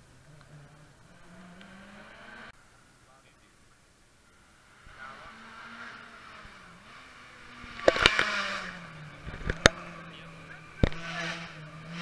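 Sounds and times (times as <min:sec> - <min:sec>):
rally car engine approaching: 0:00.0 - 0:03.0, 0:04.2 - 0:12.0
sharp cracks: 0:07.7 - 0:09.9.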